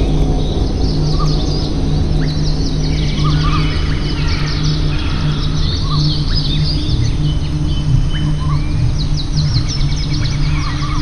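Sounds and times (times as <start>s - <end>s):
small birds chirping: 0.0s - 11.0s
steady low hum: 0.0s - 11.0s.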